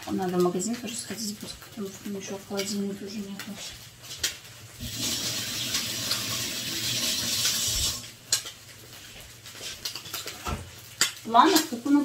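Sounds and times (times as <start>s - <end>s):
kitchenware clinking: 9.8s - 11.7s.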